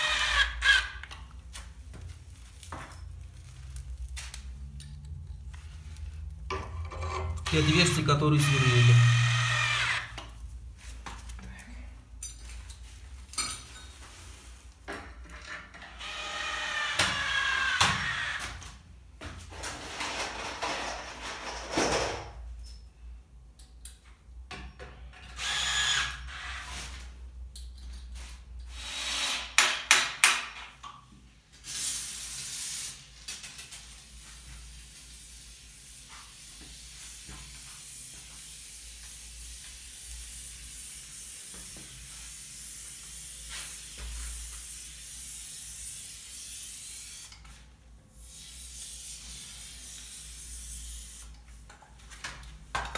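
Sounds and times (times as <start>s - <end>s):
cordless drill driving screws: 0.0s - 1.2s, 7.4s - 10.1s, 16.0s - 18.4s, 25.3s - 26.7s.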